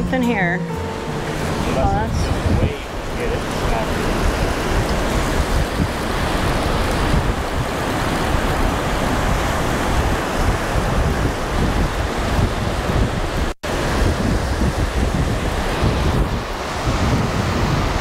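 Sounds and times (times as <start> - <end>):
ocean surf breaking: 0.0 - 18.0
wind buffeting microphone: 0.0 - 18.0.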